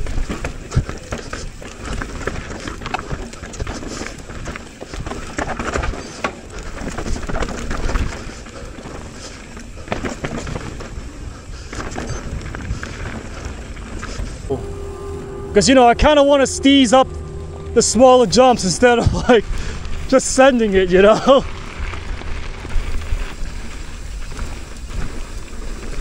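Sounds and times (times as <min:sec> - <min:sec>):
bike knocks and rattles: 0:00.0 - 0:14.1
bike tyre rumble on trail: 0:00.0 - 0:15.8, 0:17.0 - 0:26.0.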